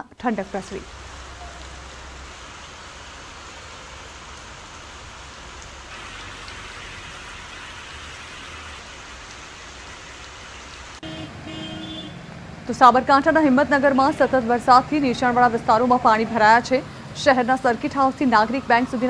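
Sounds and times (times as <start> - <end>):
heavy rain on a road: 0.4 - 19.0.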